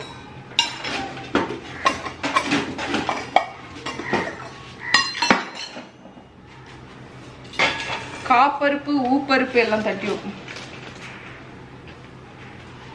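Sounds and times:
metal containers clinking on stone: 0.0s - 6.0s, 7.4s - 8.5s.

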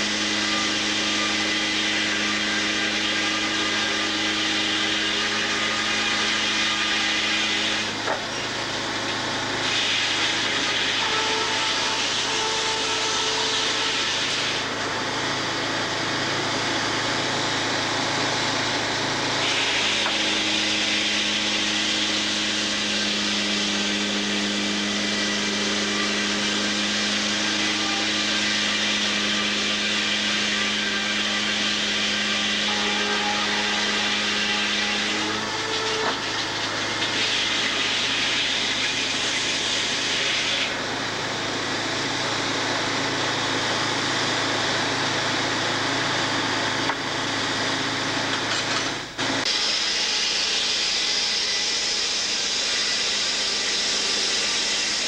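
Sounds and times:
saw cutting through a log: 0.0s - 55.0s
sawmill saw humming: 0.0s - 55.0s.

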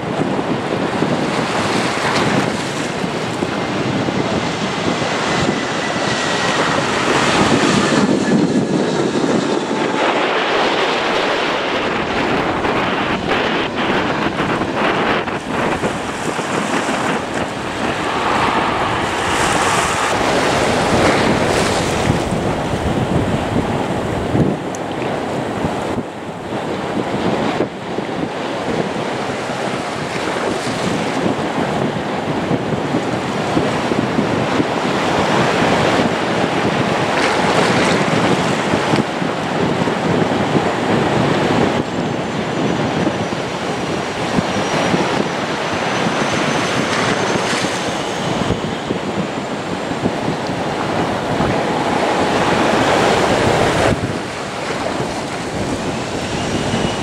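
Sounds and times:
surf rushing: 0.0s - 57.0s
wind buffeting microphone: 0.0s - 57.0s
faint high whine: 46.1s - 57.0s.

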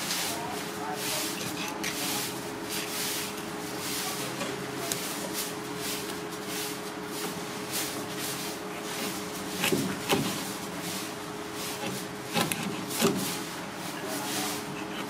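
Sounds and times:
steady low hum: 0.0s - 15.0s
cleaver scraping fish on board: 8.8s - 11.0s, 11.6s - 15.0s.

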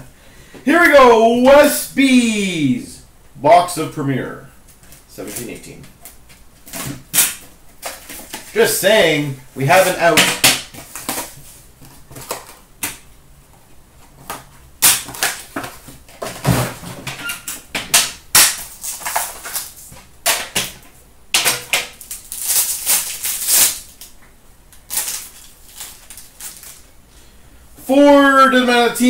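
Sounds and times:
foil wrapper crinkling: 4.7s - 9.0s, 9.7s - 12.6s, 14.3s - 16.4s, 17.3s - 20.6s, 21.7s - 27.0s.

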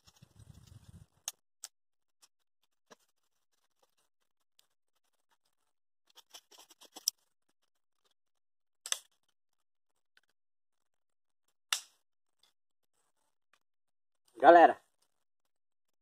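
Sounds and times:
twigs crackling in campfire: 0.0s - 1.4s.

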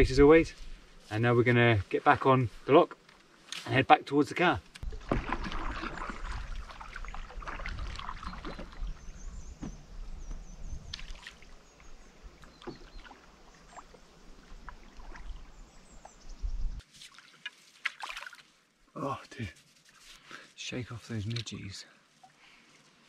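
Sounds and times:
wind rumbling on microphone: 0.0s - 0.8s, 4.8s - 13.0s, 14.3s - 16.8s
water lapping on stony shore: 4.8s - 9.4s, 10.9s - 16.2s, 16.8s - 18.8s.

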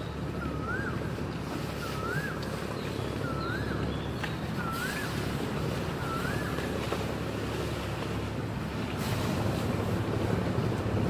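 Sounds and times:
boat engines rumbling: 0.0s - 11.0s
wind buffeting microphone: 0.1s - 11.0s
bird whistling: 6.0s - 6.5s.

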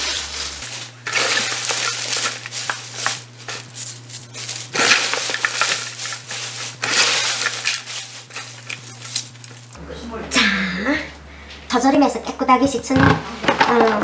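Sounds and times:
hands rustling and crunching leaves: 0.0s - 9.8s.

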